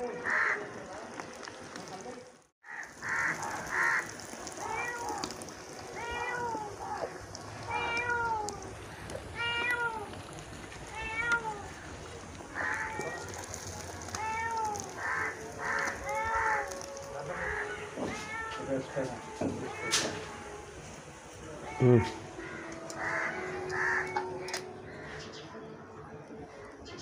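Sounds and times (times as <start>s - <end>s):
oil sizzling in pan: 0.3s - 24.0s
cat meowing: 3.2s - 10.2s, 10.8s - 12.0s, 12.6s - 20.5s, 21.5s - 24.6s.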